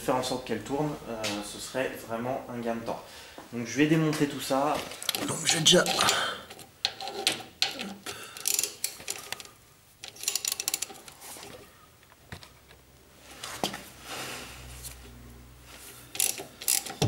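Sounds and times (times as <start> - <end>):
ratchet wrench clicking: 8.4 - 9.4, 10.0 - 11.0, 16.1 - 17.0.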